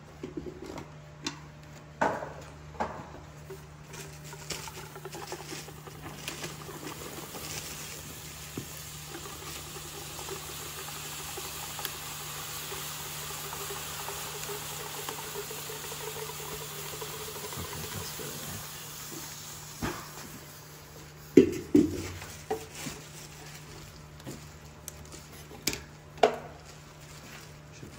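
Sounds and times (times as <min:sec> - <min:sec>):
liquid boiling off with crackles: 0:00.2 - 0:27.9
liquid nitrogen pouring: 0:03.4 - 0:27.7
steady hiss: 0:03.6 - 0:23.7.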